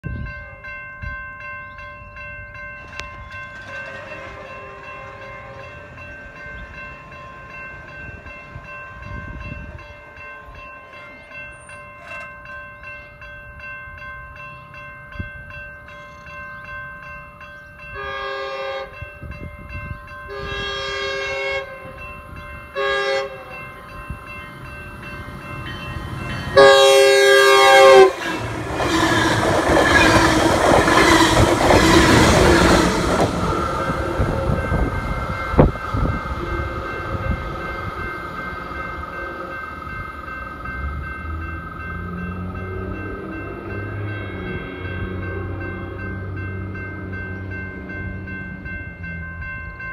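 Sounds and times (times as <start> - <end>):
crossing bell ringing: 0.0 - 49.9
train wheels rumbling on rail: 2.7 - 12.6, 18.2 - 49.8
train horn blasts: 18.0 - 19.1, 20.3 - 22.0, 22.7 - 23.6, 26.5 - 29.4, 36.0 - 37.7.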